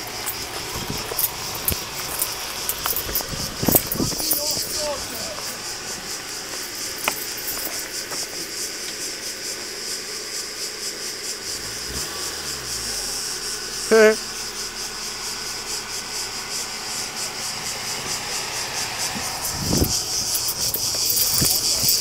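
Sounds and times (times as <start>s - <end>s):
insects buzzing chorus: 0.0s - 22.0s.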